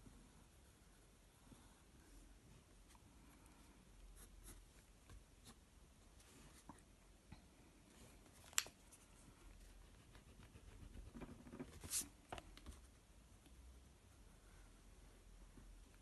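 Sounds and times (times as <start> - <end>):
pencil scratching on paper: 9.8 - 12.0.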